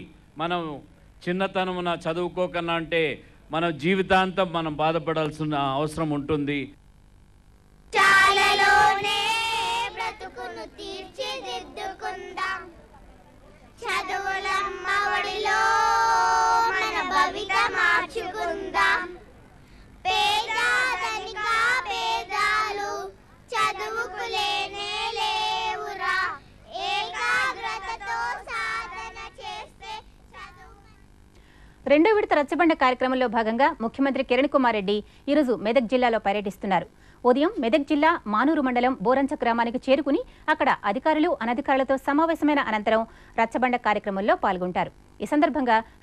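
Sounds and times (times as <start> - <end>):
children singing together: 8.0 - 12.7, 13.8 - 19.2, 20.1 - 30.7
children singing: 13.8 - 19.2.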